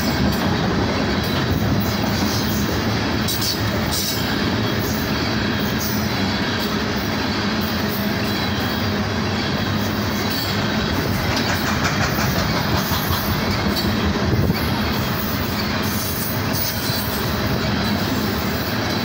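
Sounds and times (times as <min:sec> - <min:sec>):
steel train wheels rumbling on rail: 0:00.0 - 0:19.0
wheels clicking over rail joints: 0:09.3 - 0:18.0.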